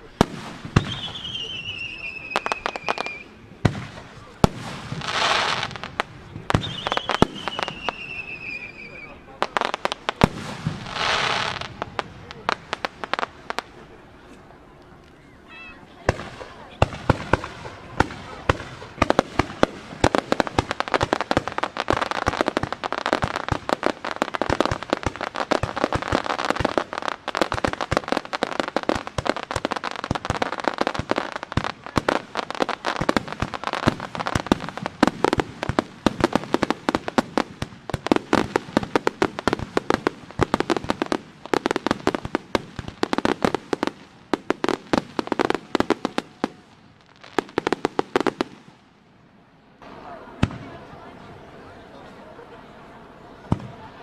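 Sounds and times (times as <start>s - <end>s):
fireworks bangs and pops: 0.0s - 13.8s, 16.0s - 48.8s, 50.4s - 50.7s, 53.5s - 53.9s.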